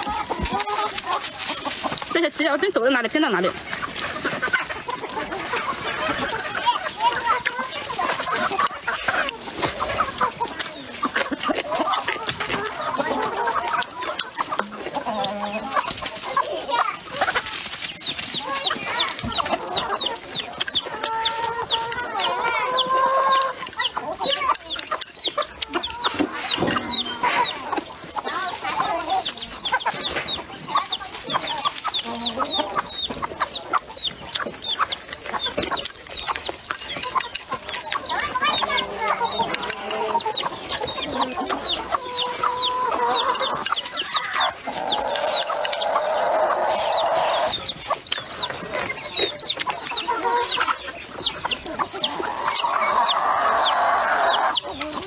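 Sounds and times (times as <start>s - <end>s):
chewing and eating: 0.0s - 55.0s
chickens clucking: 0.0s - 55.0s
chicken drawn-out call: 37.2s - 55.0s.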